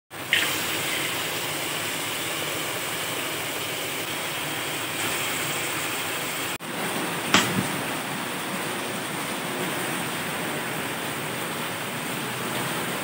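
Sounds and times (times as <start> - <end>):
tap water pouring into a pot: 0.2 - 6.5.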